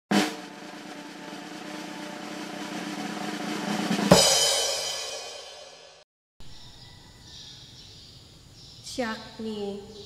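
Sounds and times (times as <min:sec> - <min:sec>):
cymbal crash ringing: 0:00.1 - 0:06.0
snare drum roll: 0:00.1 - 0:06.0.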